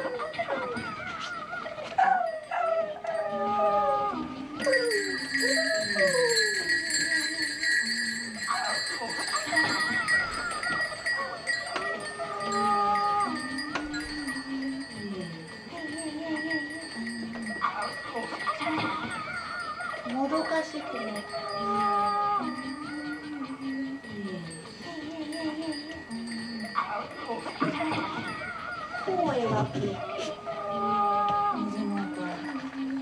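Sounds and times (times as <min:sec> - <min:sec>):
steady high ringing tone: 0:00.0 - 0:33.0
wordless female singing: 0:29.2 - 0:33.0.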